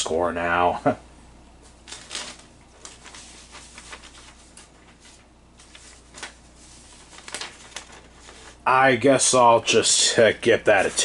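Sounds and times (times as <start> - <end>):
pen and paper rustling: 1.9 - 8.6.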